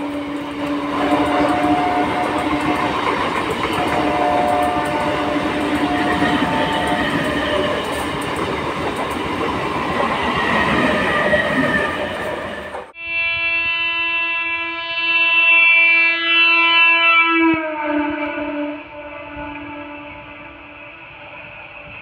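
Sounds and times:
train wheels clickety-clack: 0:00.0 - 0:12.9.

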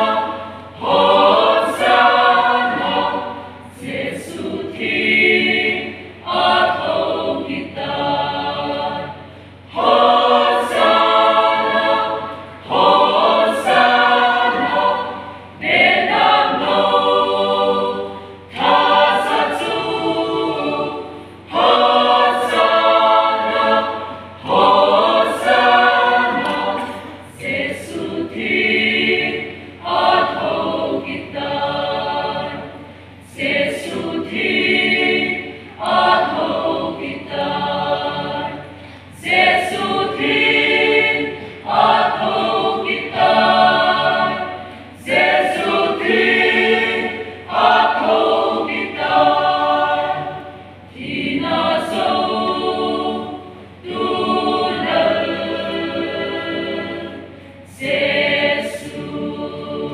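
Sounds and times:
choir singing unaccompanied: 0:00.0 - 0:59.9.

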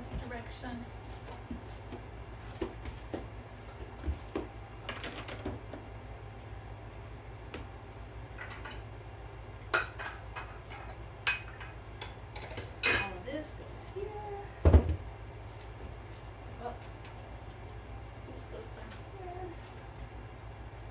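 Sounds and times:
dishes and cutlery clinking: 0:09.8 - 0:13.2.

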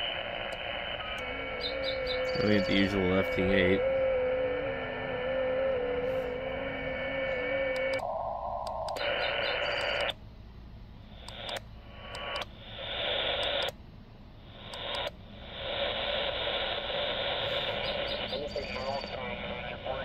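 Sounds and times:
radio static hiss: 0:00.0 - 0:10.2, 0:11.0 - 0:13.8, 0:14.4 - 0:20.0
steady wavering tone: 0:01.0 - 0:10.1
clicks: 0:07.7 - 0:10.2, 0:11.2 - 0:12.5, 0:13.3 - 0:13.8, 0:14.7 - 0:15.2.

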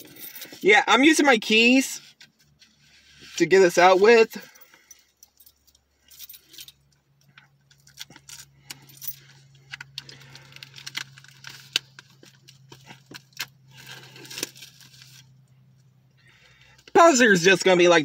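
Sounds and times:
keys jangling and scraping: 0:00.0 - 0:00.6, 0:04.2 - 0:14.8.

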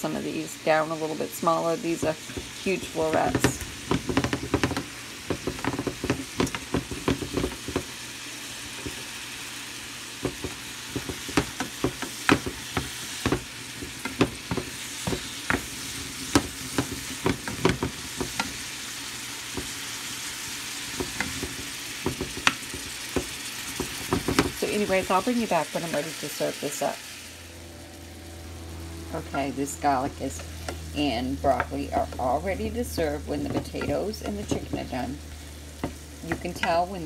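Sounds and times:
vegetables sizzling in a frying pan: 0:00.0 - 0:37.0
wooden spoon scraping a pan: 0:01.8 - 0:07.9, 0:10.2 - 0:18.8.

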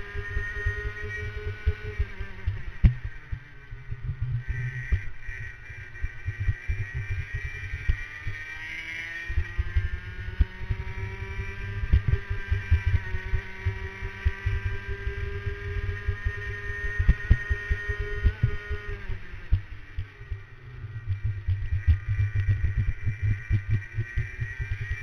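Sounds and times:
racing kart engine: 0:00.0 - 0:25.0.

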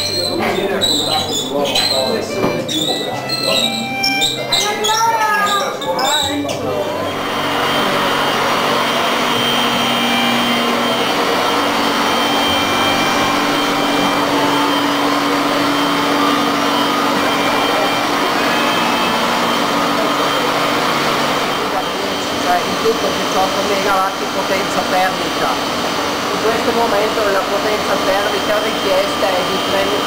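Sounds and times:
machinery humming: 0:00.0 - 0:30.0.

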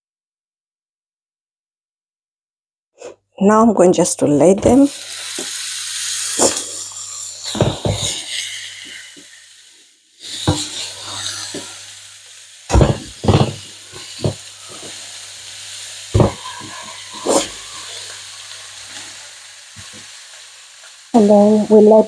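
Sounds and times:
meat sizzling in a frying pan: 0:04.8 - 0:22.0
meat knocking in a pan: 0:07.5 - 0:08.2, 0:10.4 - 0:10.9, 0:12.7 - 0:15.0, 0:16.1 - 0:17.6.

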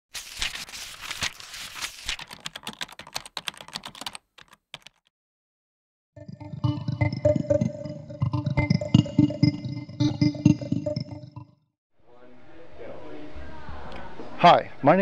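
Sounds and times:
computer keyboard typing: 0:01.2 - 0:05.1.

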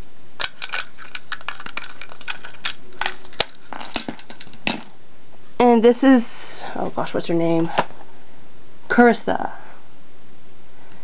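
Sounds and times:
plastic toy parts clicking: 0:00.4 - 0:04.8.

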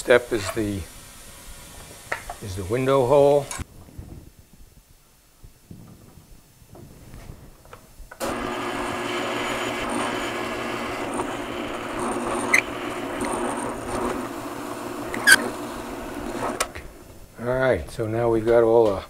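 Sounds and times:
drill press boring wood: 0:08.2 - 0:17.3.

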